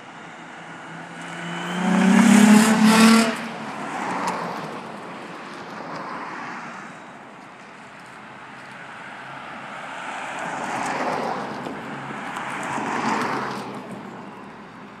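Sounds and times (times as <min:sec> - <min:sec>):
car driving past: 0:00.7 - 0:04.6.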